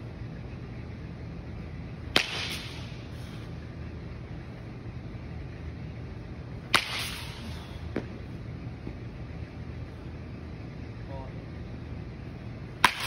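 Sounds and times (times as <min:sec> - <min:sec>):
low background hum: 0:00.0 - 0:13.0
bat hitting ball: 0:02.1 - 0:03.0, 0:06.7 - 0:08.2, 0:12.8 - 0:13.0.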